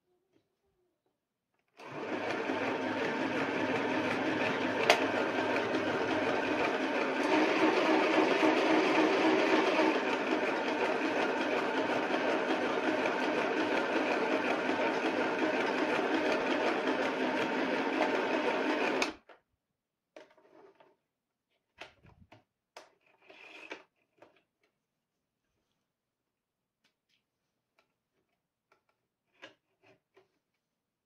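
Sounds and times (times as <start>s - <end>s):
sewing machine stitching: 1.8s - 19.2s.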